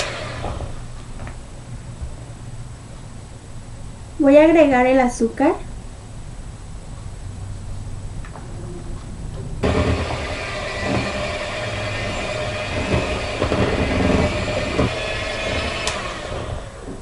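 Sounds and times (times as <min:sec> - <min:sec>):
electric hand mixer in plastic bowl: 0:00.0 - 0:00.8, 0:09.6 - 0:17.0.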